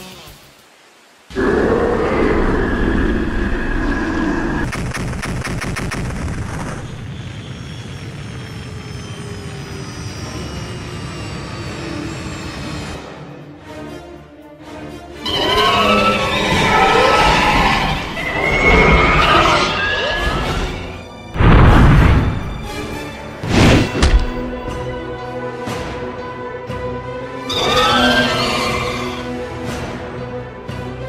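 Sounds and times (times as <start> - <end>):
loud blast of noise: 1.3 - 11.0.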